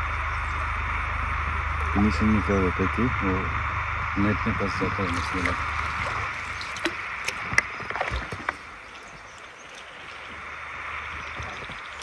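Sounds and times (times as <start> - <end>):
river water rushing: 5.1 - 11.0.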